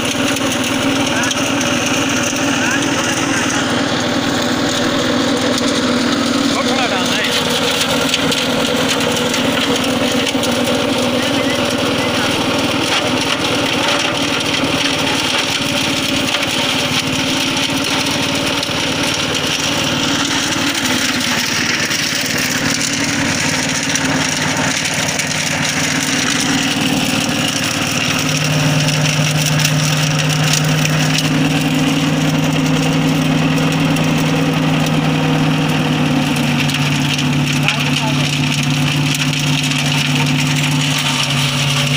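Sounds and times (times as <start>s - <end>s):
branches being chipped: 0.0s - 41.9s
wood chipper engine running: 0.0s - 41.9s.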